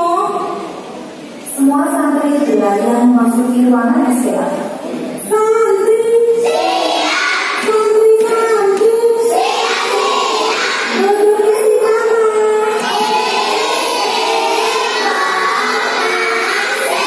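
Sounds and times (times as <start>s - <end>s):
children singing in unison: 6.4s - 7.7s, 9.2s - 11.1s, 12.6s - 17.0s.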